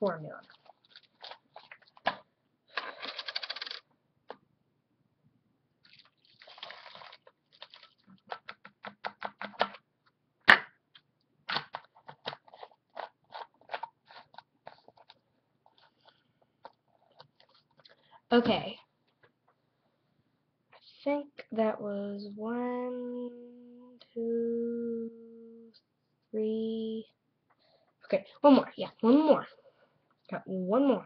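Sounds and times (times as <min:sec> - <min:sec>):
plastic bottles clicking and clinking: 0:00.5 - 0:03.8.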